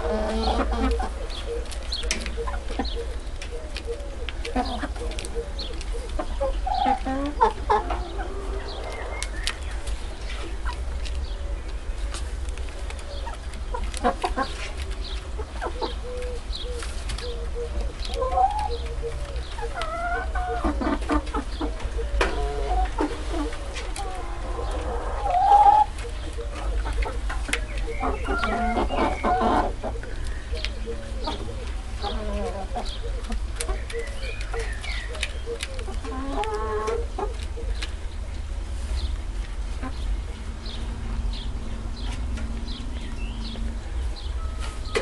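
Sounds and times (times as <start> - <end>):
hens clucking: 0.0 - 45.0
steady low rumble: 37.1 - 45.0.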